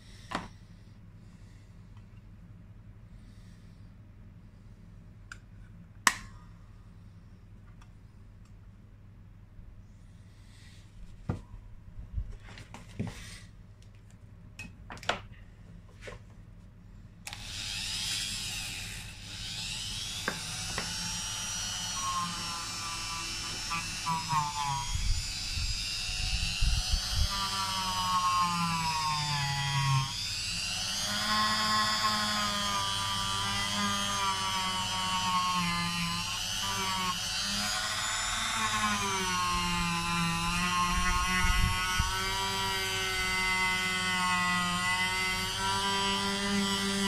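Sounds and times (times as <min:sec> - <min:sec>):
rotary tool motor whine: 0:17.3 - 0:47.0.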